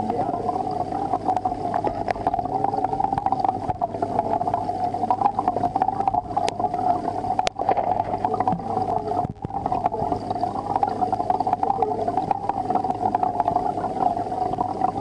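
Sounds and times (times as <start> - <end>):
aquarium pump humming: 0.0 - 15.0
water bubbling: 0.0 - 15.0
small clicks crackling: 1.1 - 15.0.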